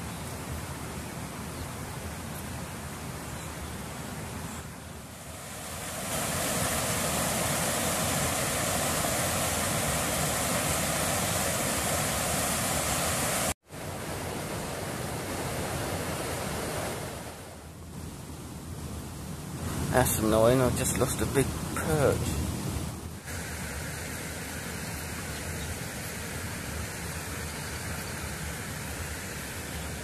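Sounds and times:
river water pouring over weir: 5.0s - 17.5s, 19.5s - 30.0s.

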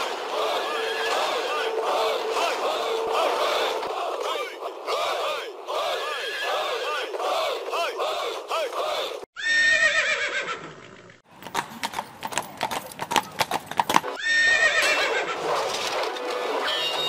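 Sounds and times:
horse whinnying: 9.4s - 11.1s, 13.2s - 15.5s
hooves galloping: 11.3s - 17.0s.

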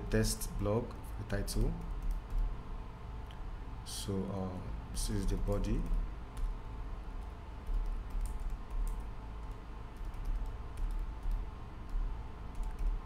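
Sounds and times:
keyboard typing: 1.5s - 2.5s, 7.6s - 13.0s.

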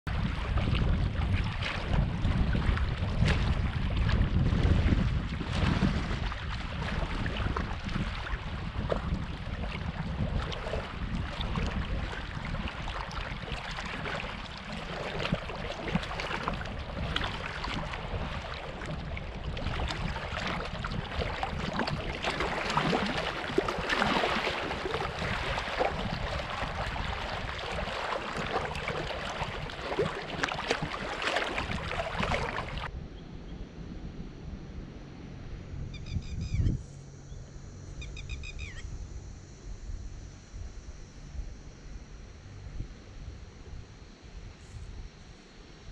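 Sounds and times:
small waves lapping: 0.1s - 32.9s
wind buffeting microphone: 0.1s - 37.5s.

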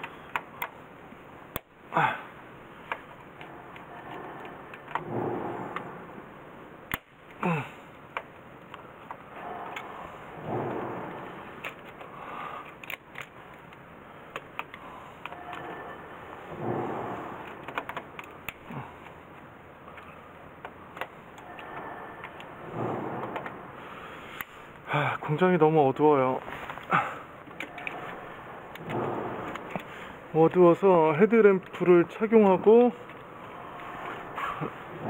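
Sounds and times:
clicks and knocks of hand work: 0.0s - 0.9s, 2.8s - 6.0s, 8.1s - 23.7s, 26.4s - 35.0s
noisy swell: 2.4s - 7.0s, 8.8s - 12.5s, 14.8s - 18.5s.

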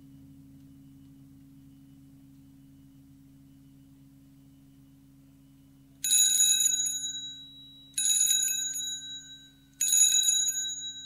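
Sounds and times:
telephone ringing: 6.0s - 11.0s.

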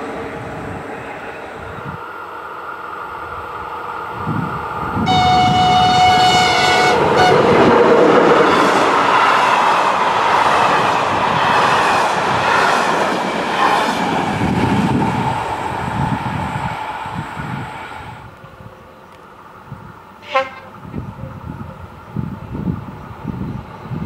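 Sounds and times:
train wheels rolling on rails: 0.0s - 24.0s
train horn blast: 5.0s - 7.7s, 20.2s - 20.8s.

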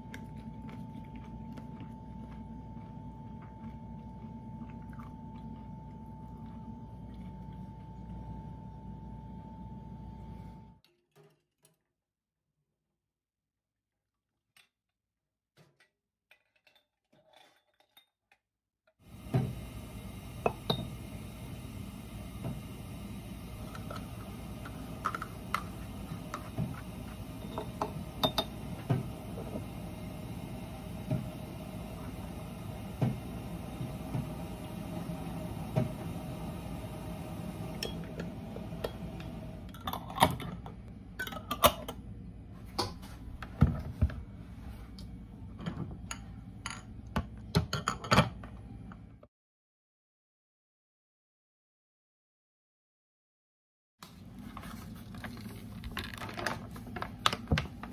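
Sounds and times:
steady background hum: 0.0s - 10.8s, 19.1s - 49.2s
metal spoon clinking glass jars: 27.4s - 28.5s.

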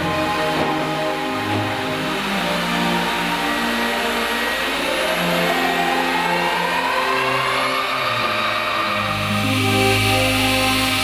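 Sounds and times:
saw whine rising: 0.0s - 11.0s.

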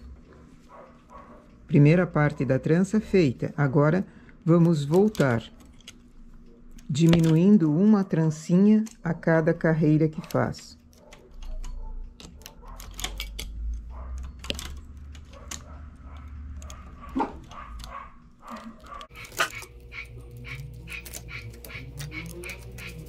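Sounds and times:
tool tapping knitting machine needles: 6.8s - 7.8s, 8.6s - 23.0s
animal calls: 15.3s - 23.0s.

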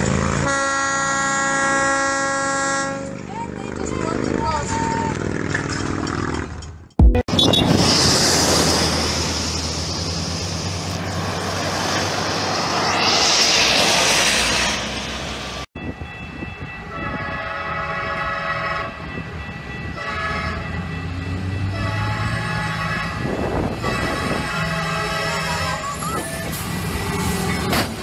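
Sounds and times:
train horn blasts: 0.4s - 3.2s, 16.8s - 19.2s, 19.8s - 25.8s
truck passing road noise: 2.8s - 15.7s.

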